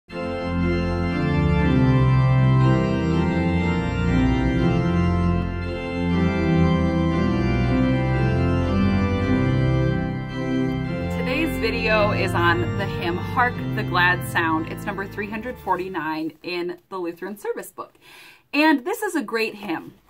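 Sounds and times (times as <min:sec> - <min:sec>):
organ playing held chords: 0:00.1 - 0:16.1.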